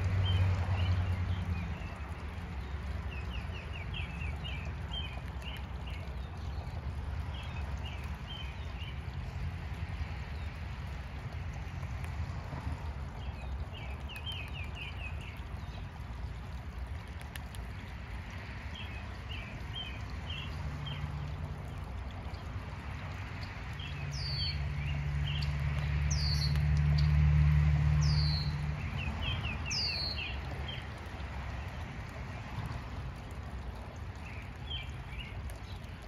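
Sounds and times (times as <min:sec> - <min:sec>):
low engine hum: 0:00.0 - 0:36.0.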